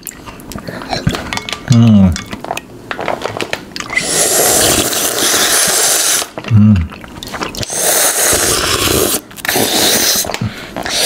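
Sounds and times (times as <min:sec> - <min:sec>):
loud slurping from spoon: 0:03.9 - 0:06.4, 0:07.6 - 0:11.0.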